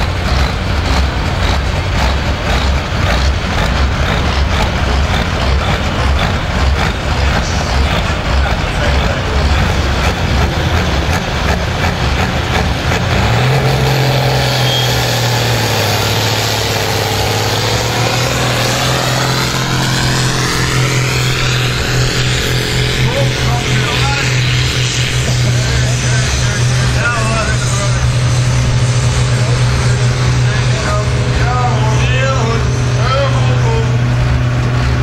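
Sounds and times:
diesel tractor engine at full throttle: 0.0s - 35.0s.

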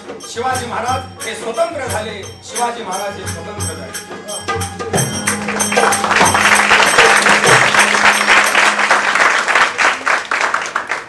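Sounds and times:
ballad music with held note: 0.0s - 9.8s
audience applause: 5.2s - 11.0s.

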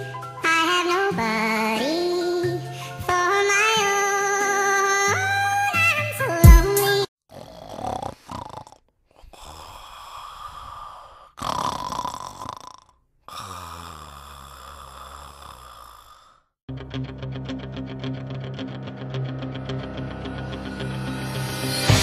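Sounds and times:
man snoring: 7.3s - 16.6s
music slowing with falling pitch: 16.7s - 22.0s.

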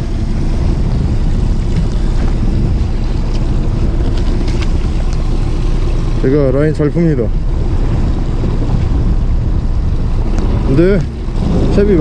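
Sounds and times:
boat engine droning: 0.0s - 12.0s
waves washing against boat hull: 0.0s - 12.0s
wind buffeting microphone: 0.0s - 12.0s.

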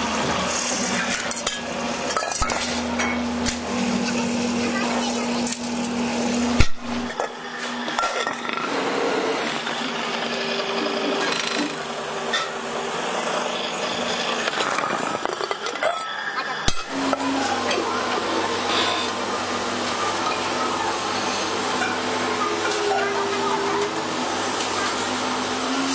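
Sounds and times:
spinning lathe machine tone: 7.1s - 25.9s.

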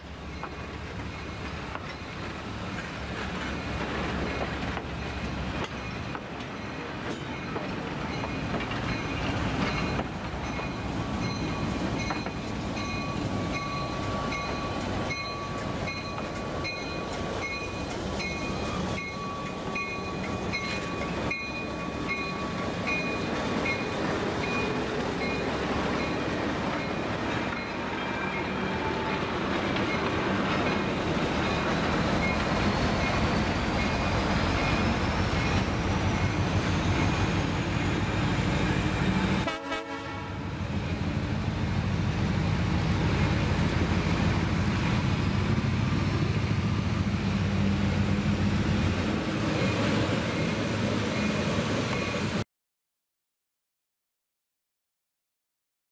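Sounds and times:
diesel locomotive whine: 0.0s - 52.4s
train wheels clicking on rail joints: 0.3s - 39.4s.

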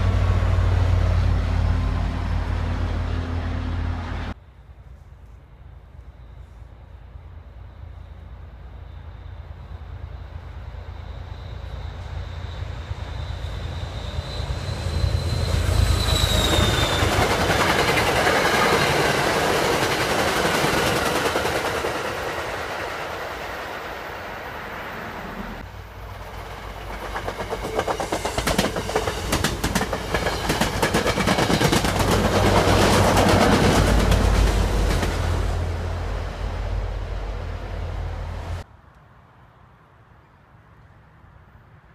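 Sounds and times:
train rumble: 0.0s - 38.7s
wheels clicking over rail joints: 16.4s - 23.6s, 26.2s - 35.3s.

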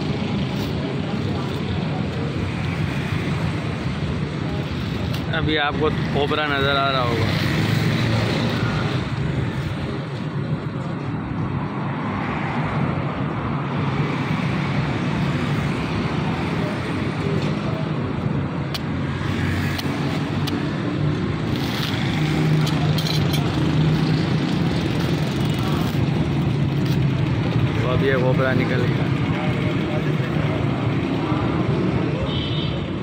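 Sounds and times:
road traffic: 0.0s - 33.0s.

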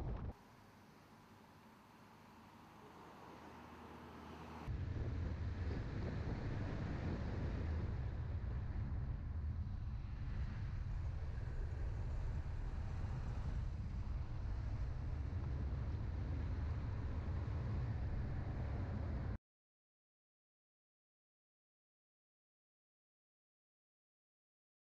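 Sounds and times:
car engine and road noise: 0.0s - 19.4s.

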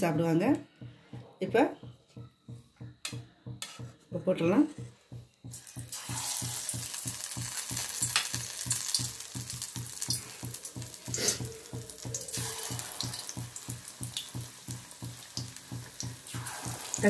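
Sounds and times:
batter deep-frying in oil: 5.4s - 17.0s.

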